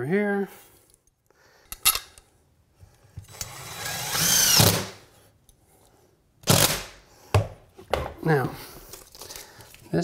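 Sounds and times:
cordless drill running: 0:03.3 - 0:05.0.

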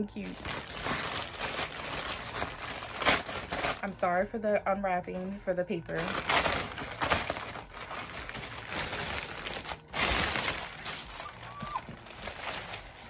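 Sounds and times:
paper rustling and crinkling: 0:00.0 - 0:04.1, 0:05.1 - 0:13.0.

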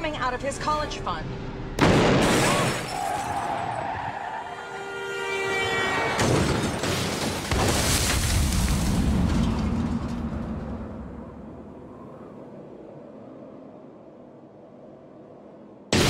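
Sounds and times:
car crash: 0:01.8 - 0:04.0, 0:06.1 - 0:11.4
car horn blaring: 0:04.5 - 0:06.5.

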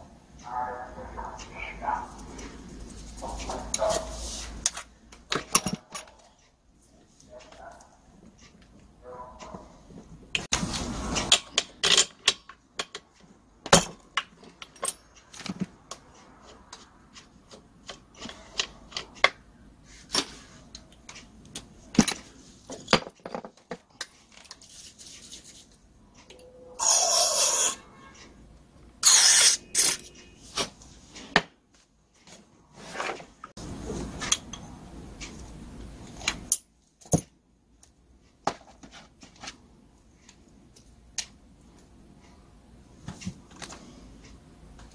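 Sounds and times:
metal tools clinking: 0:14.4 - 0:15.4.

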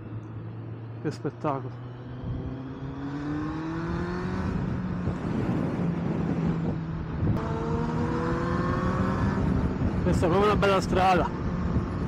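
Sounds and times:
motorcycle engine accelerating: 0:00.0 - 0:12.0
wind rush: 0:03.3 - 0:12.0.

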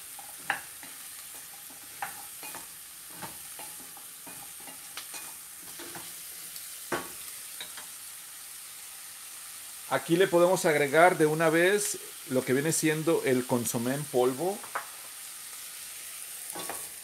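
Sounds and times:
vegetables sizzling in a saucepan: 0:00.0 - 0:17.0
wooden spoon scraping a pan: 0:00.1 - 0:06.4.

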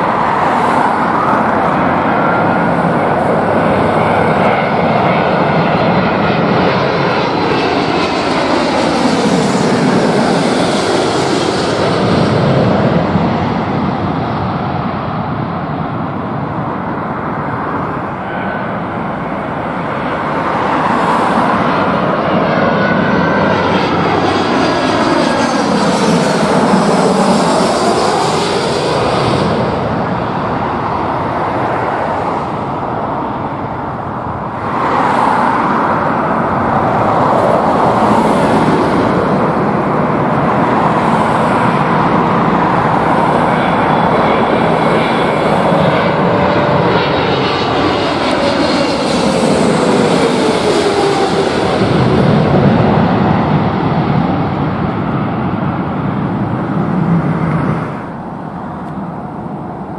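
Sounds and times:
jet airliner passing overhead: 0:00.0 - 0:59.9.

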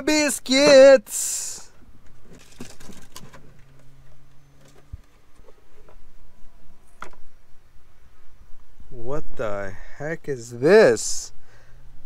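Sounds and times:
objects clicking and knocking: 0:02.1 - 0:03.8.

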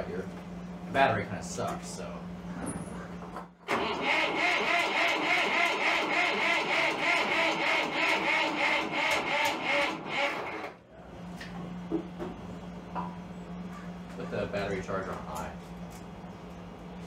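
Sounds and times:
diesel engine cranking: 0:03.6 - 0:10.8.

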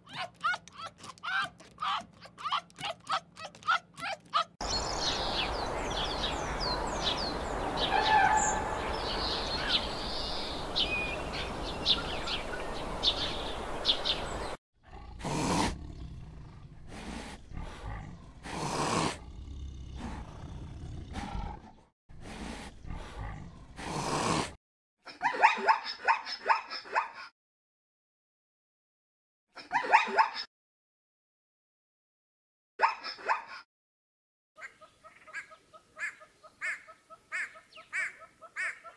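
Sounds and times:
small birds chirping: 0:04.3 - 0:14.6
large animal breathy calls: 0:14.8 - 0:24.6.

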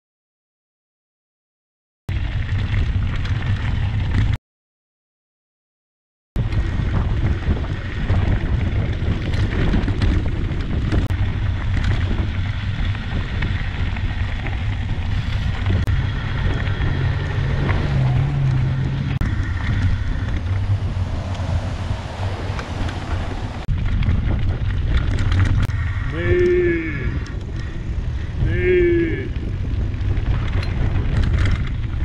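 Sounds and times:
bike rolling on gravel: 0:02.1 - 0:04.4, 0:06.4 - 0:32.0
bike knocking over stones: 0:06.4 - 0:16.9, 0:22.6 - 0:25.7, 0:29.4 - 0:32.0
wind buffeting microphone: 0:06.4 - 0:32.0.

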